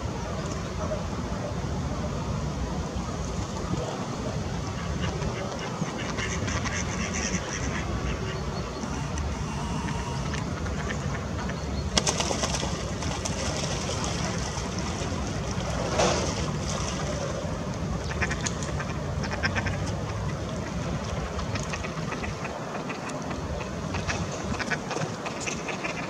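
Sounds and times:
ducks calling: 4.7 - 11.8
short clicks: 8.8 - 10.5.

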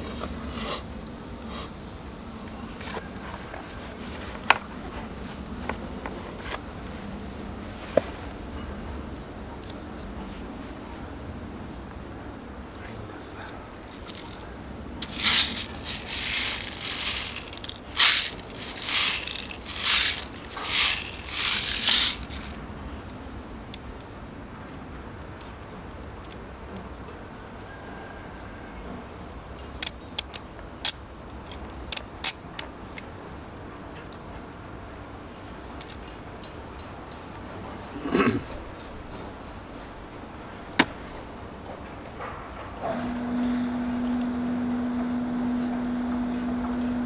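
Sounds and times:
bbs rattling in a bottle: 13.8 - 22.6, 35.8 - 36.0
sharp clicks of magazine parts: 29.8 - 32.7.

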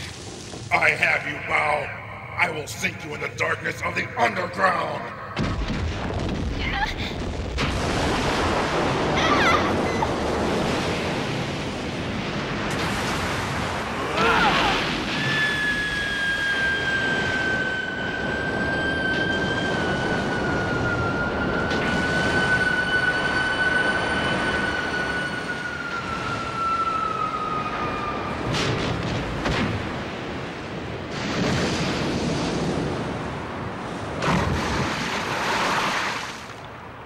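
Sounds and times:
rumble of breaking rock: 5.4 - 9.2
heavy crashing surges: 5.4 - 26.3
high whining tone falling: 15.0 - 28.6.

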